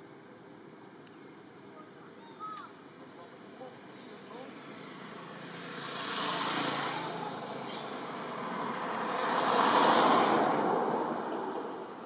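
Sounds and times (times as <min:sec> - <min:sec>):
vehicle passing by: 0:04.6 - 0:12.0.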